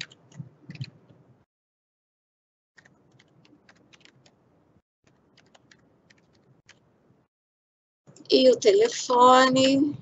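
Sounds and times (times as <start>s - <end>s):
faint keyboard typing: 0.0s - 1.4s, 2.8s - 7.0s.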